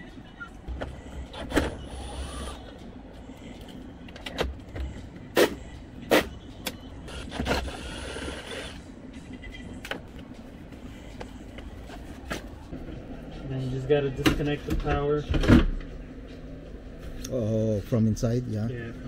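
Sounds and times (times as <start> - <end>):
tool whirring: 1.3 - 2.7, 7.1 - 8.8.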